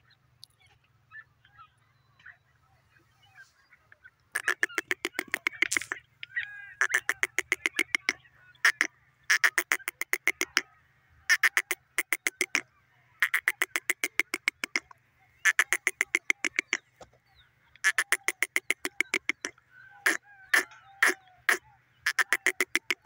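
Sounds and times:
bird calling in rapid sharp notes: 4.3 - 10.6, 11.3 - 17.0, 17.8 - 23.0.

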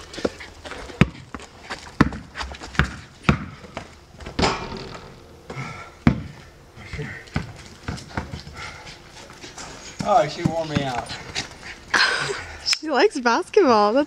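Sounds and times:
basketball bouncing on court: 2.0 - 5.0, 6.0 - 6.4, 7.3 - 8.4.

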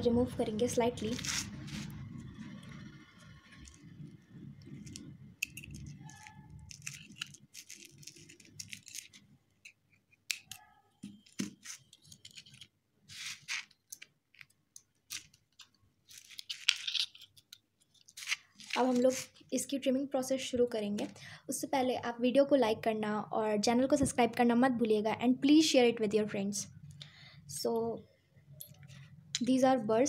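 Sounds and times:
handling noise rubbing: 1.0 - 14.4, 15.1 - 19.3
metal instrument scraping and clicking: 1.2 - 10.6.

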